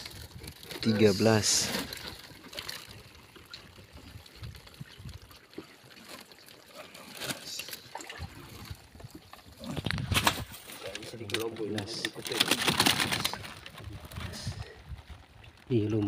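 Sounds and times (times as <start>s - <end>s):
water trickling and dripping: 0.0s - 10.0s.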